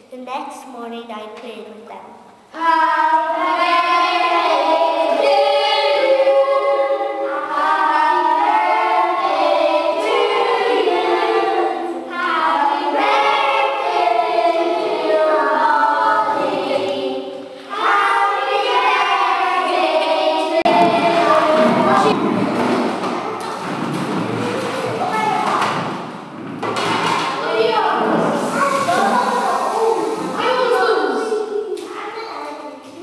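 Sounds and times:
children singing together: 2.5 - 24.8.

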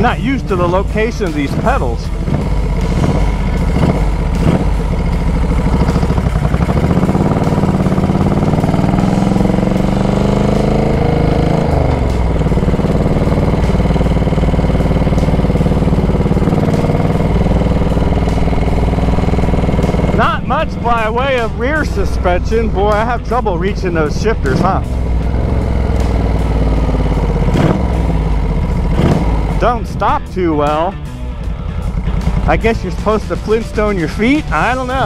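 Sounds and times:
motorcycle engine revving: 0.0 - 35.0.

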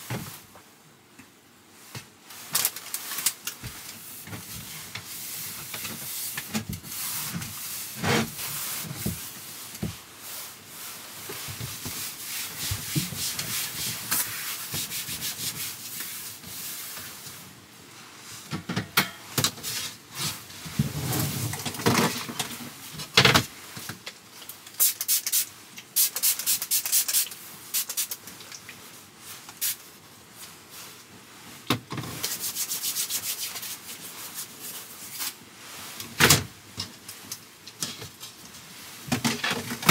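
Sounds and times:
rubbing and rustling: 1.8 - 18.4, 26.0 - 36.2.

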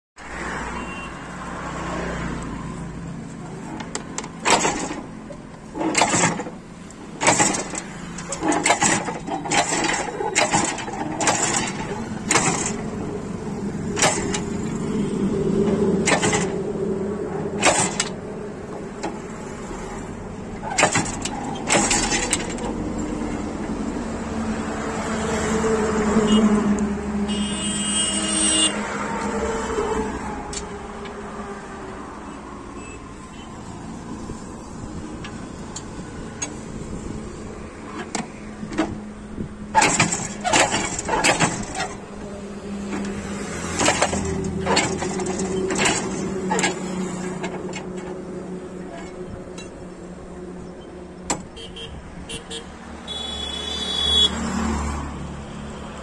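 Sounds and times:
low vehicle rumble: 0.2 - 27.9, 28.5 - 53.0
metal clanks and knocks: 3.3 - 14.9, 15.6 - 16.7, 17.4 - 19.4, 20.3 - 24.0, 34.1 - 50.1.

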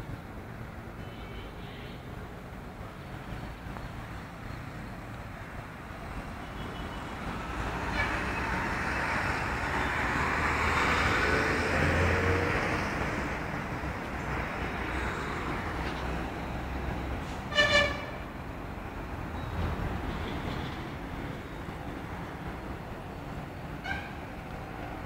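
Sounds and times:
road traffic rush: 0.0 - 25.0
vehicle passing: 7.4 - 15.8.

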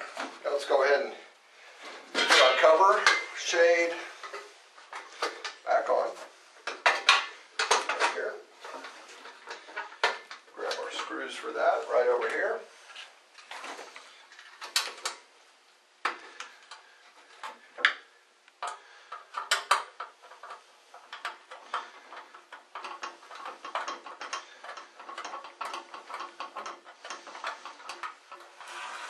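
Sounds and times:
metallic clicks and scrapes: 1.8 - 15.3, 16.0 - 29.0.

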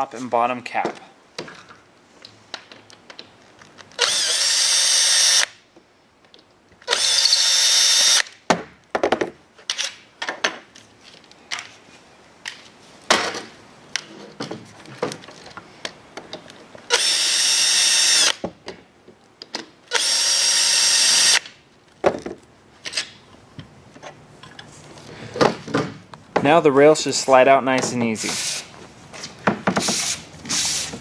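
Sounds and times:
cordless drill motor whine: 4.0 - 5.5, 6.9 - 8.2
clicks and knocks of parts handled: 9.0 - 11.8, 12.4 - 16.8.

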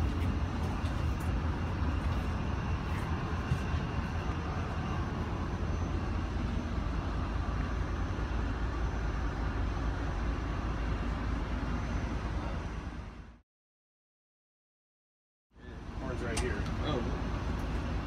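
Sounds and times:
locomotive engine idling: 0.0 - 13.4
faint high whine: 0.2 - 13.4.

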